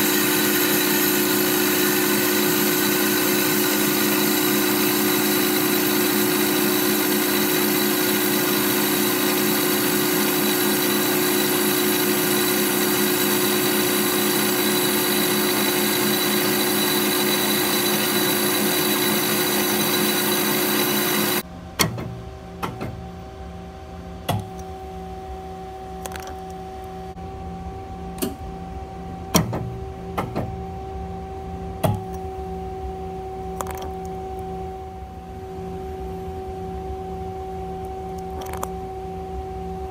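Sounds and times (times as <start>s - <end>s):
band saw cutting: 0.0s - 21.4s.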